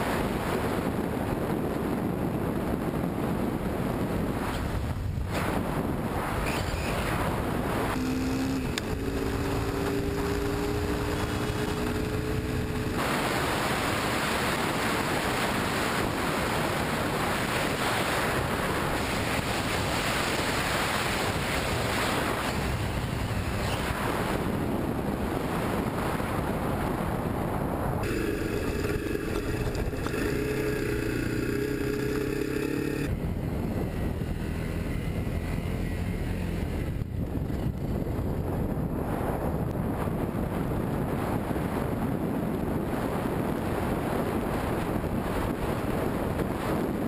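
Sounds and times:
wind on microphone: 0.0s - 47.0s
dirt bike engine: 3.1s - 25.7s, 28.0s - 38.3s.

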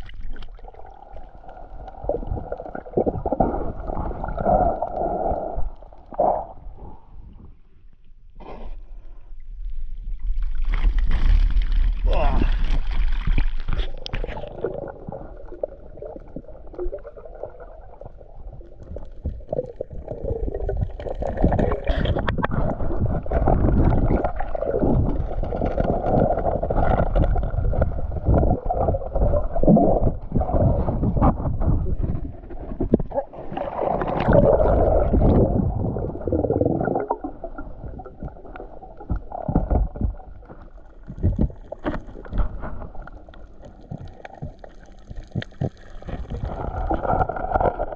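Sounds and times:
muffled underwater rushing and gurgling: 0.0s - 7.8s, 9.8s - 47.9s
low underwater thumps: 34.1s - 47.9s.

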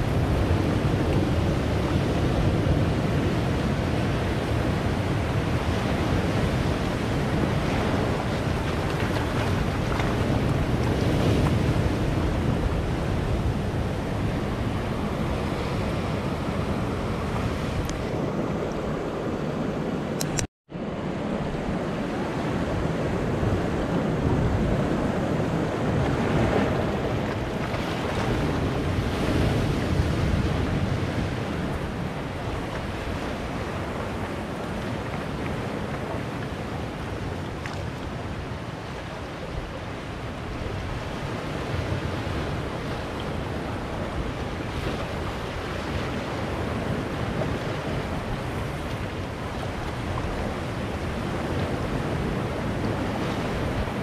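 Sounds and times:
surf washing among boulders: 0.0s - 54.0s.

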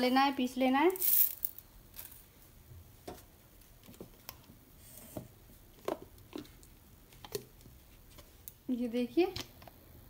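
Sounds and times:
grains clicking into metal jar: 0.9s - 2.2s.

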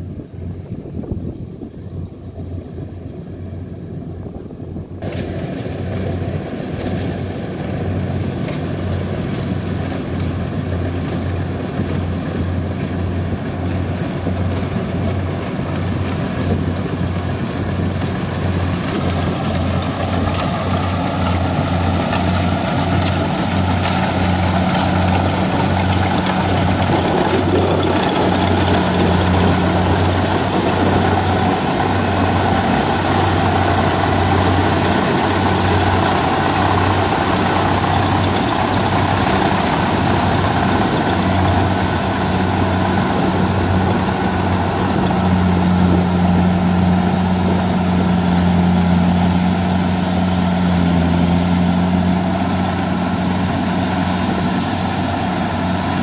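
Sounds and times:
combine harvester engine running: 0.0s - 56.0s
mechanical threshing noise: 17.9s - 52.8s.

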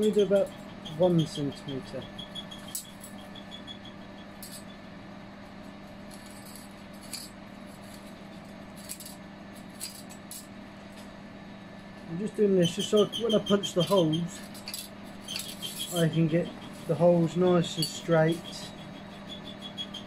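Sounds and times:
steady low hum: 0.0s - 20.0s
scriber scraping steel: 12.6s - 20.0s.

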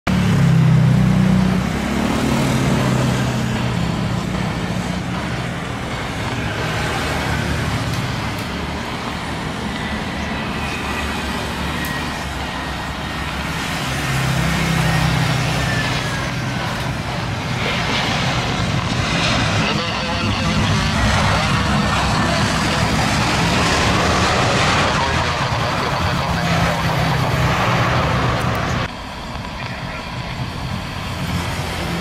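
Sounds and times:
cars and motorbikes passing: 0.1s - 19.4s.

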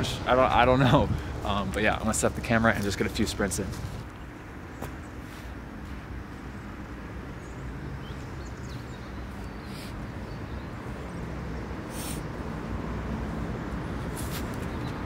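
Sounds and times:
distant city traffic rumble: 0.0s - 15.0s
faint bird chirps: 7.4s - 10.8s
brief hisses: 11.9s - 12.3s.

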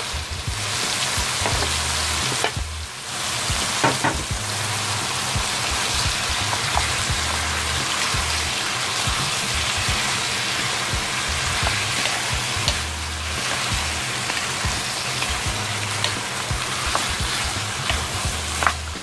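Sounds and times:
meat sizzling in oil: 0.0s - 19.0s
wooden spatulas knocking on pan: 1.2s - 1.8s, 3.6s - 4.4s.

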